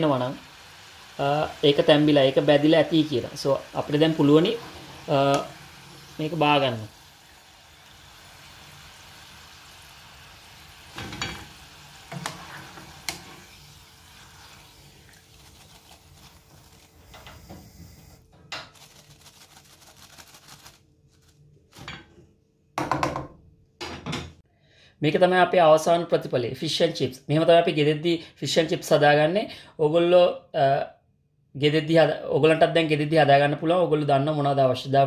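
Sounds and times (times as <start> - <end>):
oil sizzling with chips: 0.0 - 21.9.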